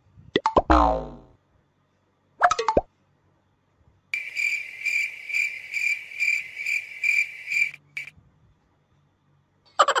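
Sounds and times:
cricket chirping: 4.2 - 8.1.

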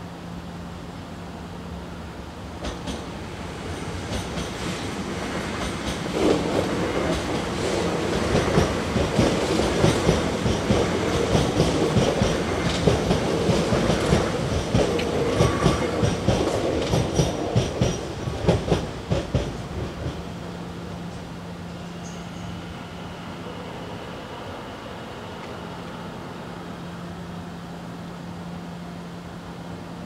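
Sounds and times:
train wheels clickety-clack: 2.6 - 20.3.

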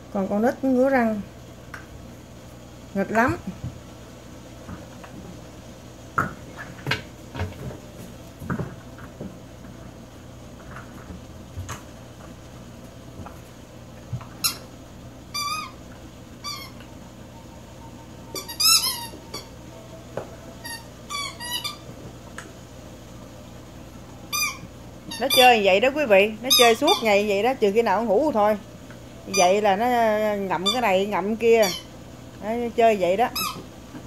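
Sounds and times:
rubber squeaky toy squeaking: 18.4 - 19.5, 20.6 - 21.8, 24.3 - 25.6, 33.4 - 33.6.

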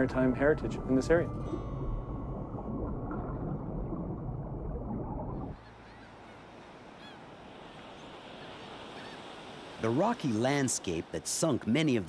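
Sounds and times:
low underwater rushing: 0.0 - 5.6
faint wash of open water: 1.4 - 12.0
faint bird calls: 5.5 - 7.3, 7.9 - 9.4.

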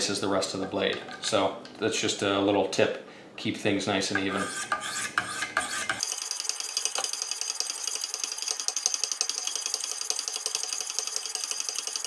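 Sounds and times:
sharpening stones rasping on knife: 4.2 - 6.1.

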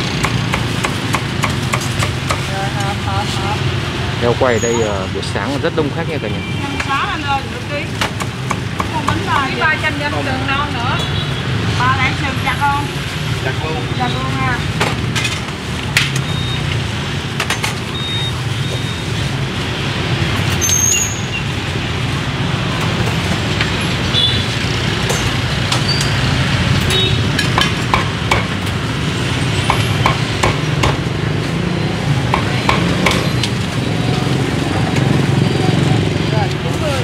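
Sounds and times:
motorbike engines running: 0.0 - 37.0
street traffic: 0.0 - 37.0
cleaver chopping meat: 0.2 - 2.5, 27.4 - 28.6, 29.7 - 31.1.

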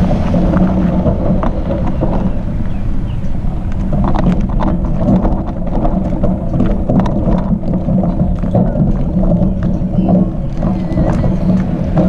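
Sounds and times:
bicycle tyres rolling over gravel: 0.0 - 12.0.

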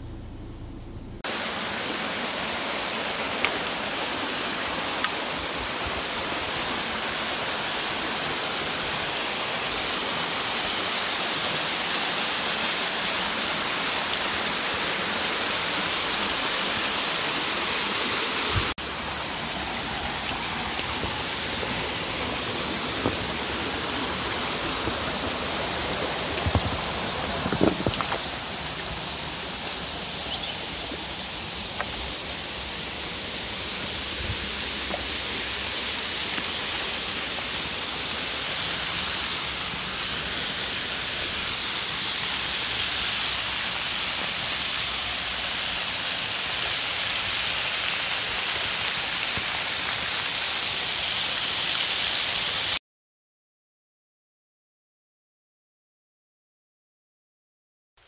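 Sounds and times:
waterfall rushing over rocks: 1.3 - 52.8
low bumps: 20.6 - 29.9.

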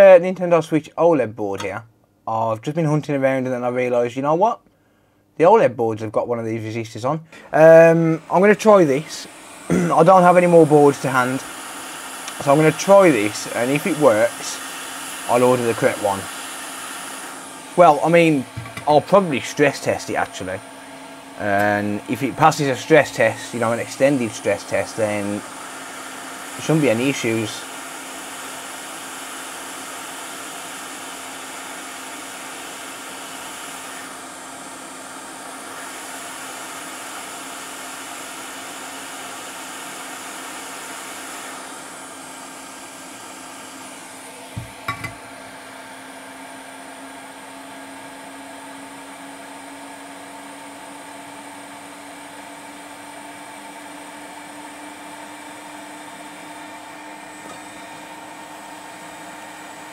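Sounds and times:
steady hum: 6.4 - 16.3
hot air blower rushing: 7.3 - 59.9.

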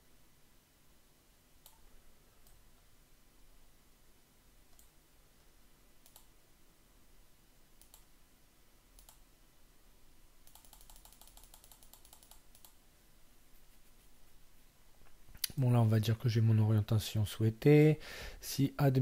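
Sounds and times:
computer mouse clicks: 1.6 - 1.8, 4.7 - 5.0, 6.0 - 6.3, 7.8 - 8.1, 9.0 - 9.2, 10.4 - 12.8.

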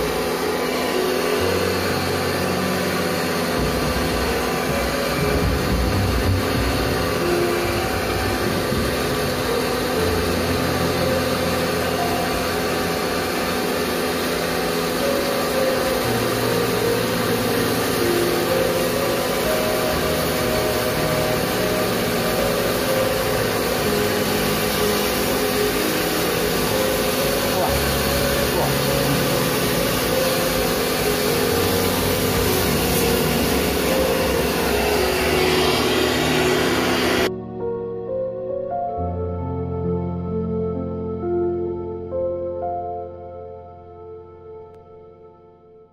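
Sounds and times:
pump motor humming: 0.0 - 37.3
water jetting and splashing: 3.2 - 37.3.

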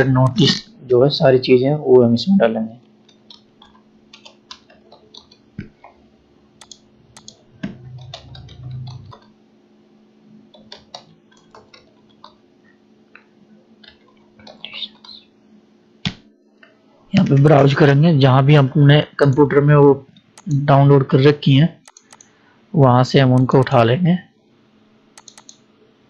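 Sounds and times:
faint steady hum: 0.0 - 26.0
computer keyboard typing: 3.0 - 6.0, 6.6 - 9.4, 10.5 - 12.4, 13.8 - 15.2, 21.8 - 22.3, 25.2 - 25.6
mouse clicks: 6.6 - 9.3, 21.8 - 22.3, 25.2 - 25.6.

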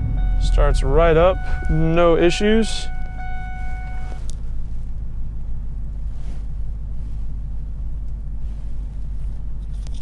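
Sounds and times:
steady electronic tone: 0.0 - 4.2
truck engine idling: 0.0 - 10.0.

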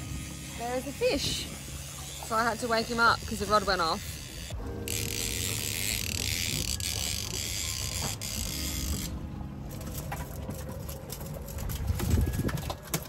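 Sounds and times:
fishing reel whirring: 0.0 - 12.2.

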